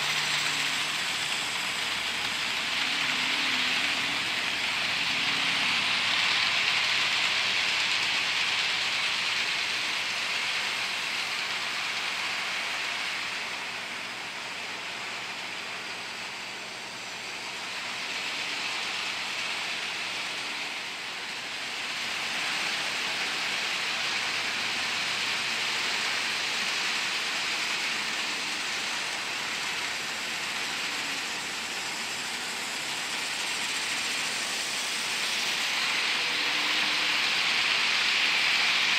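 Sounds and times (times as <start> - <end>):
model train wheels on rails: 0.0 - 38.9.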